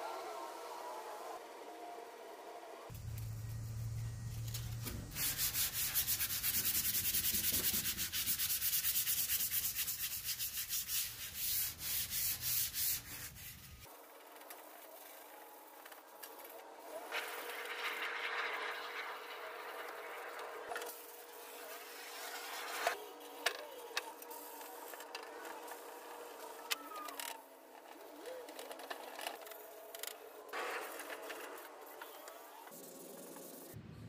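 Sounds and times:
hand sanding metal: 0:05.1 - 0:13.9.

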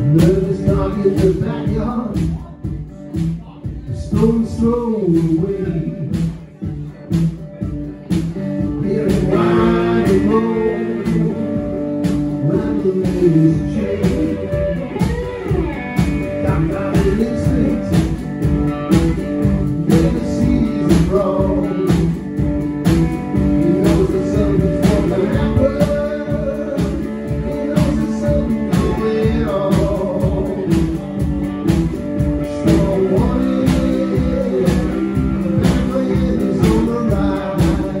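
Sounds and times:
drum kit: 0:00.0 - 0:38.0
electric guitar: 0:00.0 - 0:38.0
man singing: 0:00.0 - 0:38.0.

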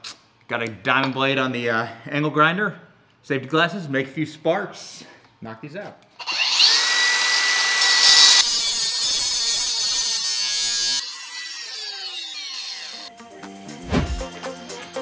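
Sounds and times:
angle grinder grinding concrete: 0:06.2 - 0:13.1.

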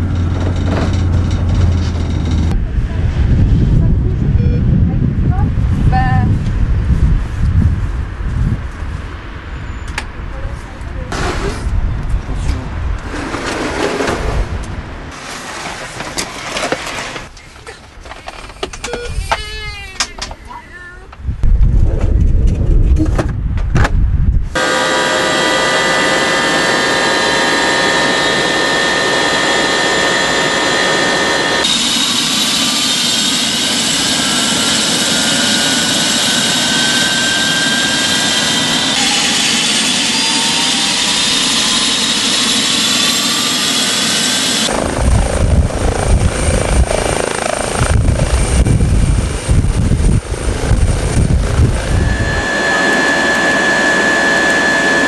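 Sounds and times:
rotor wash low rumble: 0:00.0 - 0:09.5, 0:33.8 - 0:55.0
helicopter turbine whine: 0:24.6 - 0:55.0.

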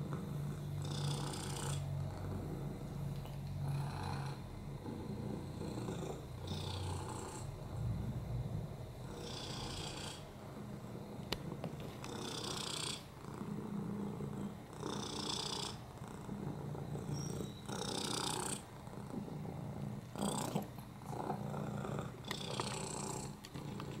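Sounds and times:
cat purring: 0:00.0 - 0:24.0
soft rushing sound: 0:07.4 - 0:10.4.

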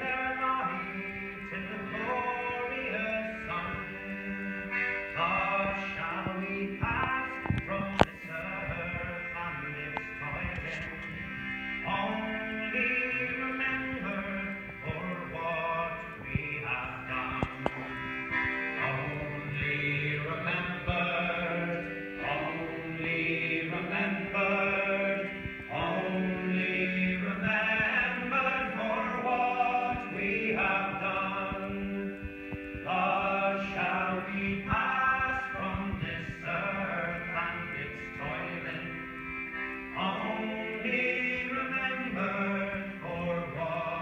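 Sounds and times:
piano accordion: 0:00.0 - 0:44.0
men singing together: 0:18.8 - 0:39.0, 0:40.0 - 0:44.0.

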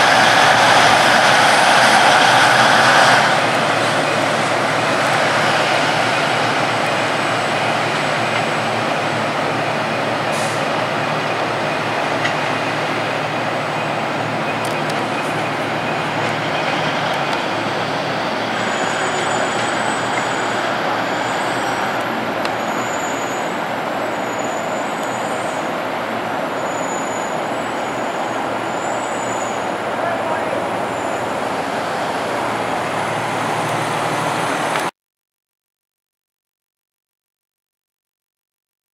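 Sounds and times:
diesel train rumbling: 0:00.0 - 0:34.9
high-pitched wheel squeals: 0:13.8 - 0:25.8, 0:26.5 - 0:29.8.

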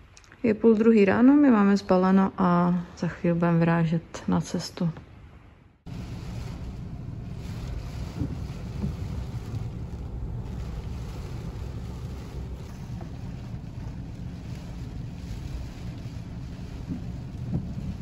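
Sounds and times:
wind buffeting microphone: 0:05.8 - 0:18.0
heavy rain: 0:05.9 - 0:18.0.

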